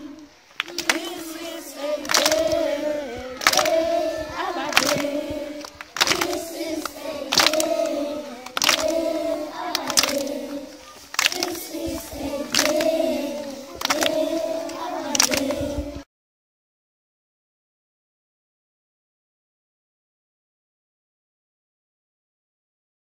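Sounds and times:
children singing in unison: 0.0 - 16.1
sharp hand clap: 0.5 - 2.8, 3.4 - 15.6.

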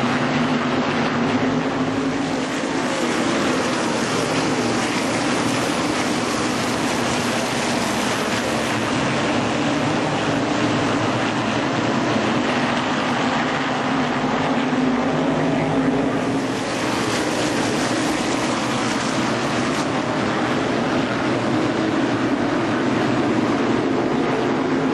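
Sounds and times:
racing car engines droning: 0.0 - 24.9.

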